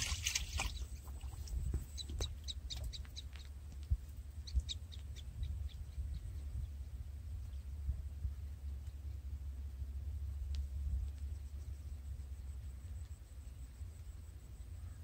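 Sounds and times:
small birds chirping: 0.0s - 9.5s
steady low rumble: 0.0s - 15.0s.

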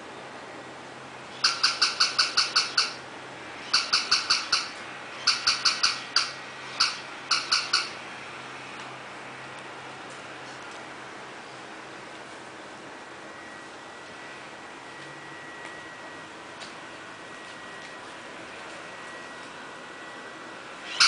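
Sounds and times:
toy dog electronic yaps: 1.3s - 3.0s, 3.6s - 8.0s.

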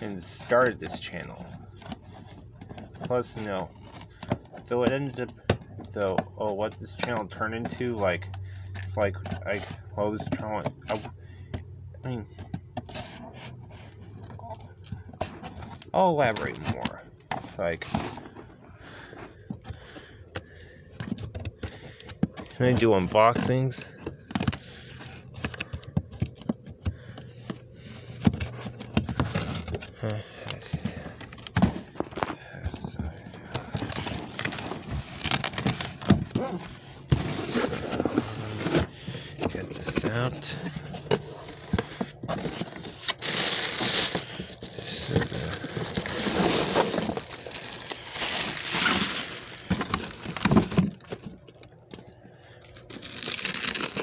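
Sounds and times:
cardboard rustling and scraping: 12.6s - 19.7s, 20.9s - 51.6s
packing material crinkling: 28.0s - 54.0s.

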